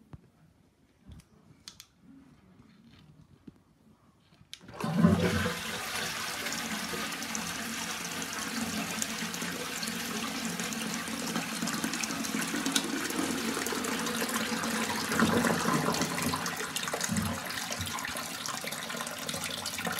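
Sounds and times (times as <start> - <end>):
cistern refilling: 4.7 - 19.9
toilet flushing water rush: 4.7 - 19.9.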